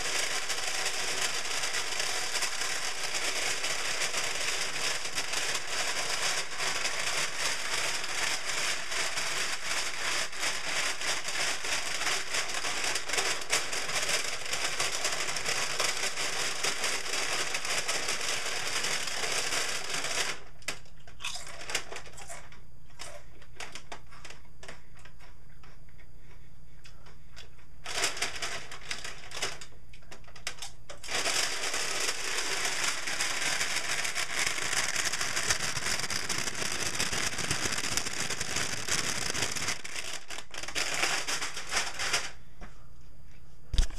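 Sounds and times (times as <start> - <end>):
plastic bag crinkling: 31.0 - 42.4.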